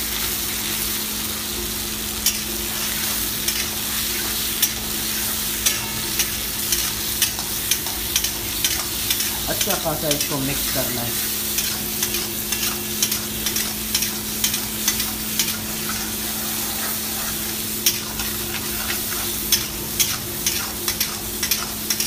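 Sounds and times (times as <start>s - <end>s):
vegetables sizzling in a wok: 0.0s - 22.0s.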